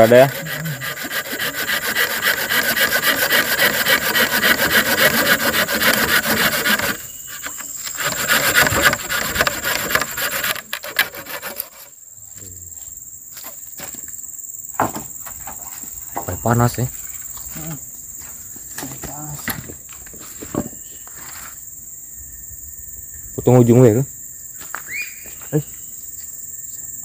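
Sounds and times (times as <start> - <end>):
hand saw cutting wood: 0.0 - 11.9
high insect drone: 0.0 - 27.0.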